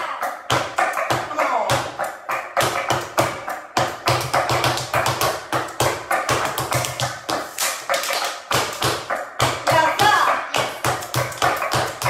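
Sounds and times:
flamenco shoes stamping on floor: 2.6s - 12.0s.

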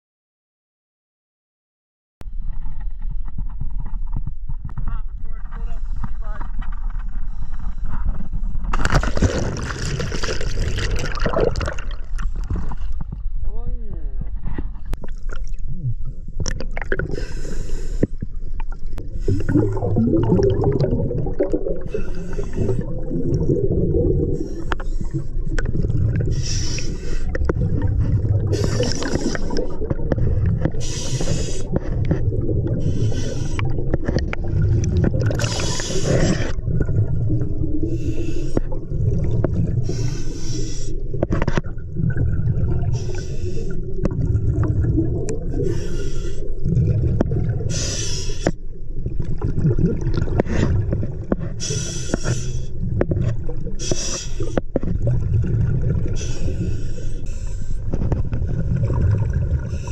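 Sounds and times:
exhaled air bubbling: 7.1s - 13.4s, 14.2s - 59.9s
regulator air hiss: 30.8s - 31.8s, 39.8s - 41.0s, 47.7s - 48.5s.

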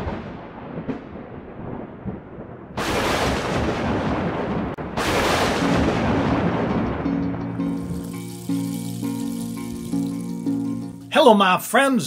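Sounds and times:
loud cinematic hits: 2.8s - 7.7s
held musical notes: 7.2s - 11.7s.

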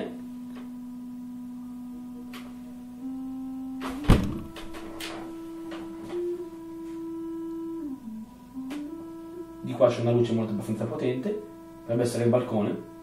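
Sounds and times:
steady electronic tone: 0.0s - 13.0s
thump: 3.8s - 4.6s.

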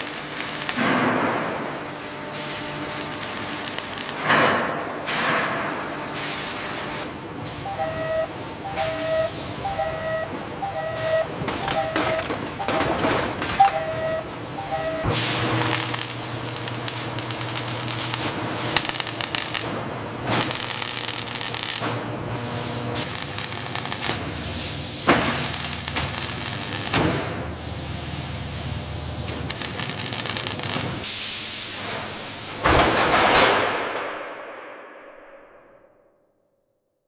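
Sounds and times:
low machine hum: 7.0s - 18.7s.

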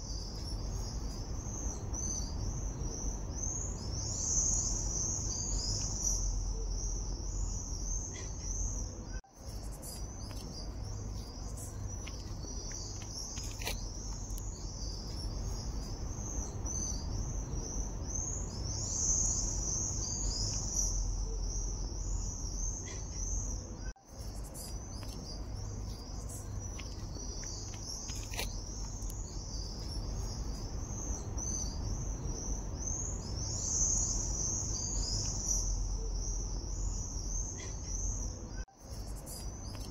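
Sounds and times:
insects chirring: 0.0s - 39.9s
low background rumble: 0.0s - 39.9s.

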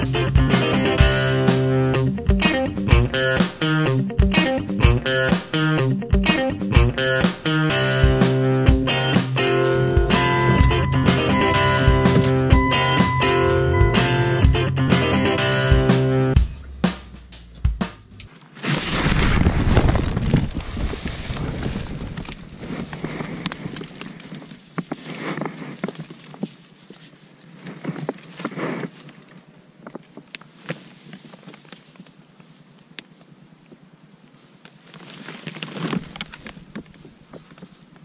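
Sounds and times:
tent fabric rustling: 18.3s - 32.7s, 34.4s - 38.0s.

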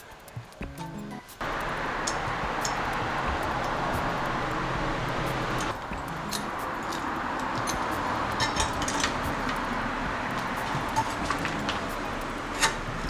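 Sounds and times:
steady hiss: 0.0s - 13.0s
light clicks and clinks: 5.6s - 13.0s.

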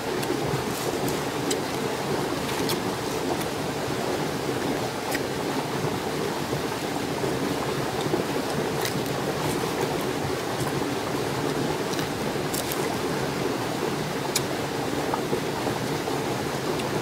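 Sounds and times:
crab shell cracking: 8.8s - 10.0s, 11.9s - 13.0s.

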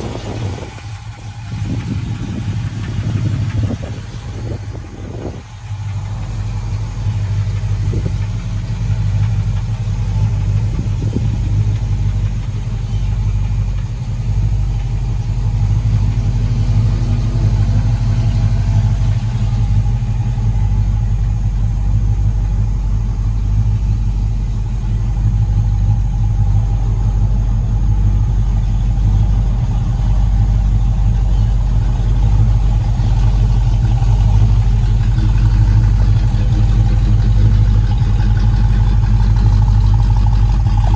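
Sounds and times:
pickup engine idling: 0.0s - 40.9s.

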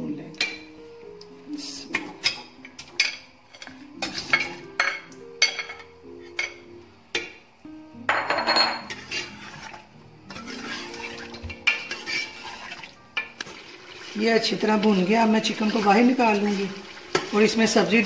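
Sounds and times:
chicken frying: 8.9s - 18.0s
metal spoon clinking in pot: 10.3s - 12.6s.

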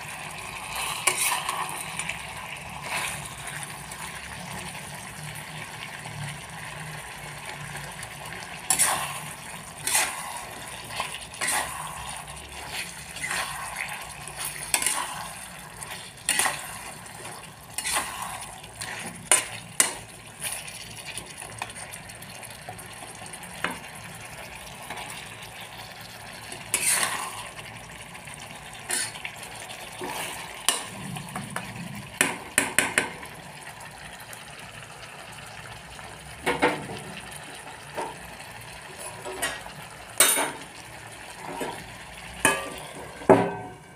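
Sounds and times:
food sizzling: 0.0s - 43.9s
metal spatula scraping a wok: 0.6s - 2.1s, 8.2s - 20.7s, 26.4s - 27.6s, 28.7s - 31.0s.

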